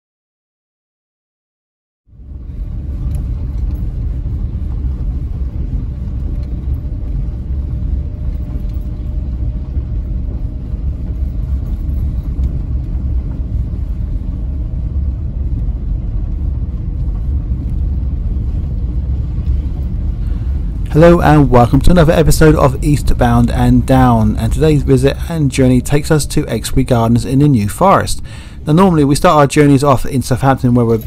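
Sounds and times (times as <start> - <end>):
car rumble from inside cabin: 2.2 - 25.8.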